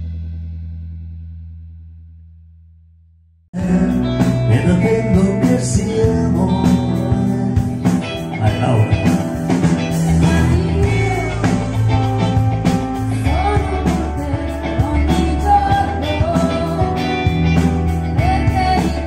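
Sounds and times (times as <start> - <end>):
steady beat: 3.6 - 15.6
guitar: 3.6 - 19.0
people singing into microphones: 9.9 - 12.1, 13.0 - 19.0.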